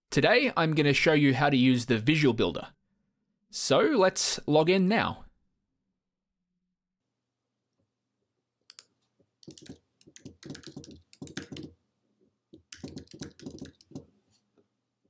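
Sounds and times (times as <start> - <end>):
computer keyboard typing: 8.7 - 11.8, 12.6 - 14.1.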